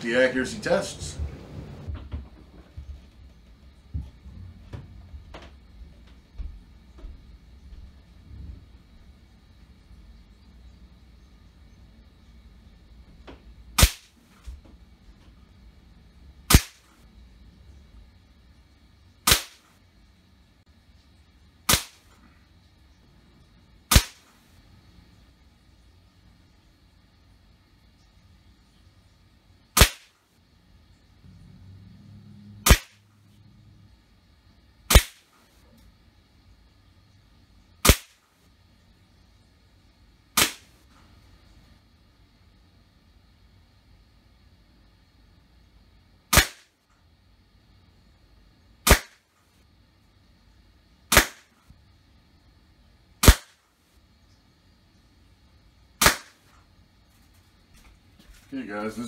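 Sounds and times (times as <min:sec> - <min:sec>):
air rifle shots: 0:16.5 - 0:16.9, 0:19.3 - 0:19.7, 0:21.7 - 0:22.1, 0:23.9 - 0:24.3, 0:29.8 - 0:30.1, 0:32.6 - 0:33.0, 0:34.9 - 0:35.3, 0:37.8 - 0:38.2, 0:46.3 - 0:46.7, 0:48.9 - 0:49.2, 0:51.1 - 0:51.5, 0:53.2 - 0:53.6, 0:56.0 - 0:56.4.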